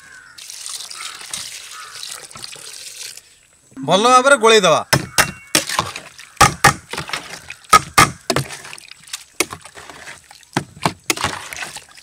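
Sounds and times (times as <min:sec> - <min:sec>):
wet mixing sounds: 0:00.3 - 0:03.3, 0:05.4 - 0:12.0.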